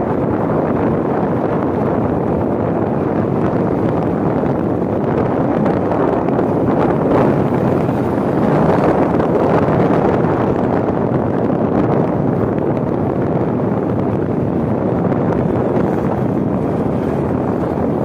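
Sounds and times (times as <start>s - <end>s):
motorcycle running: 0.0s - 18.0s
road noise: 0.0s - 18.0s
wind rushing over microphone: 0.0s - 18.0s.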